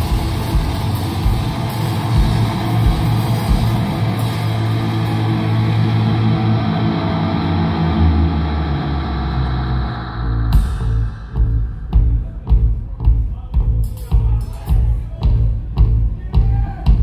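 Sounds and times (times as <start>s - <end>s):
electric guitars: 0.0s - 12.3s
low bass line: 0.0s - 17.0s.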